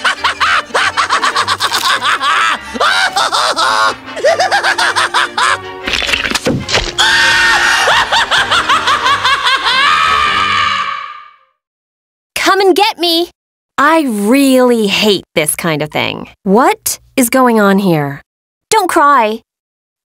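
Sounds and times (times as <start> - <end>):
cartoon voice laughing and screaming: 0.0 - 5.6, 7.0 - 11.4
background music: 0.0 - 11.5.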